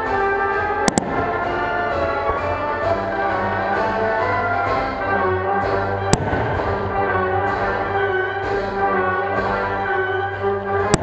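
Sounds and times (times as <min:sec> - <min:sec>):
orchestral brass chords: 0:00.0 - 0:11.0
firework bang: 0:00.8 - 0:02.6, 0:06.1 - 0:07.2.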